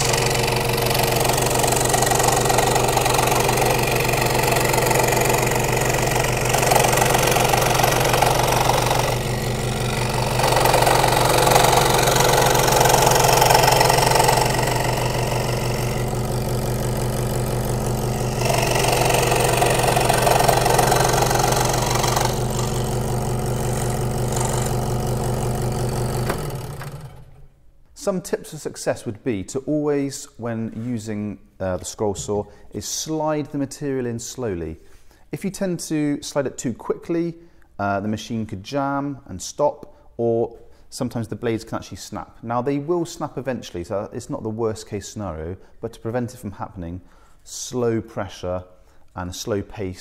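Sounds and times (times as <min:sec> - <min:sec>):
saw blade cutting plywood: 0:00.0 - 0:27.4
scroll saw humming: 0:00.0 - 0:27.5.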